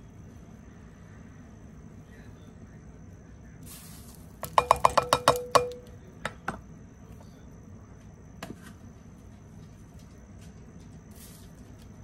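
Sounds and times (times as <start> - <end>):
glass bowl ringing: 4.4 - 6.0
measuring cup tapping glass bowl: 4.4 - 6.6.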